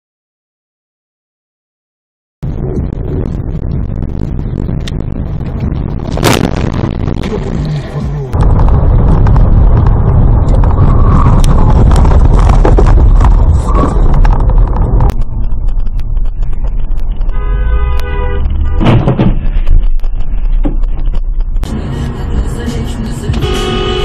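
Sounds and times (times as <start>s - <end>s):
road and engine rumble in car: 2.4s - 24.0s
car horn: 17.3s - 19.1s, 23.4s - 24.0s.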